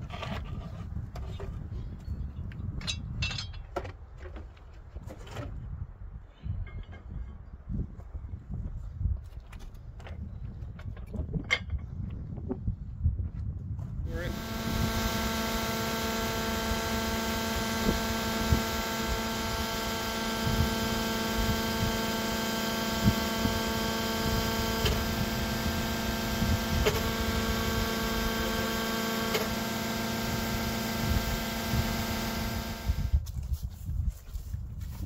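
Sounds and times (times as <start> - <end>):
pitched hum: 14.0 - 33.3.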